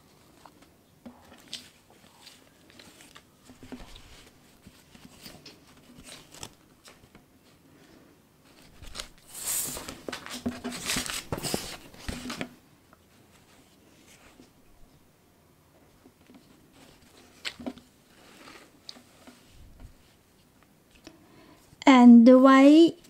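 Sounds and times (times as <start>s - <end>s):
canvas rustling and crinkling: 0.2s - 7.6s, 8.4s - 12.5s.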